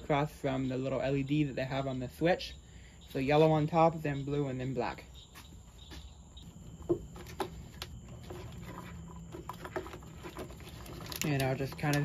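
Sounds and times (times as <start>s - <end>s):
light rustling of wires: 5.8s - 12.0s.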